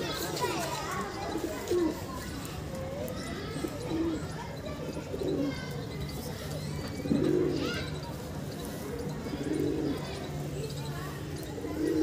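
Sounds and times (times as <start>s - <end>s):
pigeons cooing: 1.2s - 2.2s, 3.4s - 10.5s, 11.3s - 12.0s.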